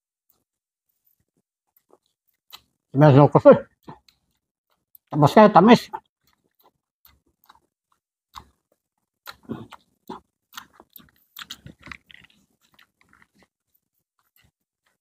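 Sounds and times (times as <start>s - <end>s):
people chewing and smacking: 0.2s - 3.0s, 3.6s - 5.2s, 5.9s - 15.0s.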